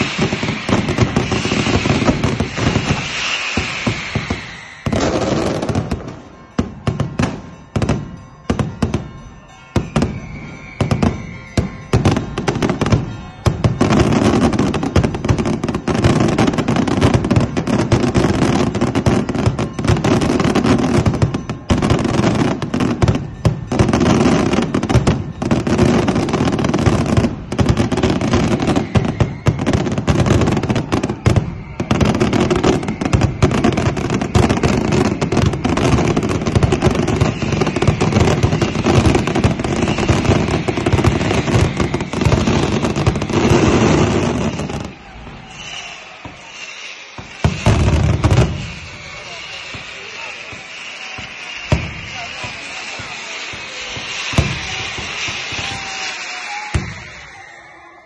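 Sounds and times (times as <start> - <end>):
fireworks bangs and crackles: 0.0 - 58.0
music: 3.4 - 17.8.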